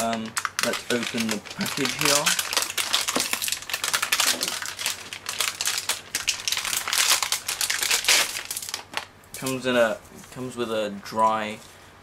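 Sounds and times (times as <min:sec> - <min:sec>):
plastic bag crinkling: 0:00.0 - 0:09.6.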